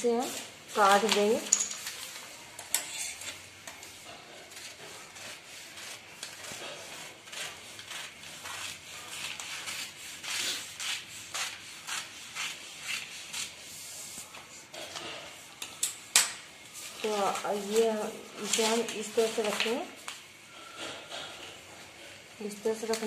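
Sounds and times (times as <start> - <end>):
scissors snipping newspaper: 0.4 - 13.6, 17.0 - 20.3
paper rustling: 16.8 - 20.3.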